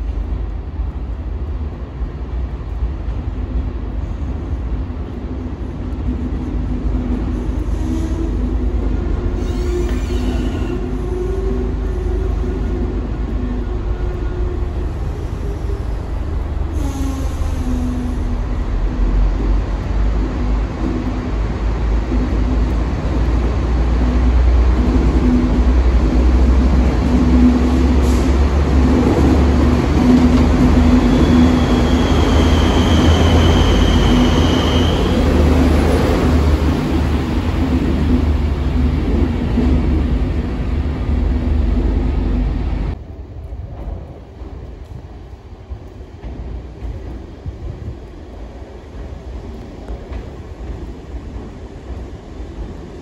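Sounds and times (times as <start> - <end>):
train wheel and wagon rumble: 0.0 - 53.0
high wheel squeal: 30.8 - 35.5.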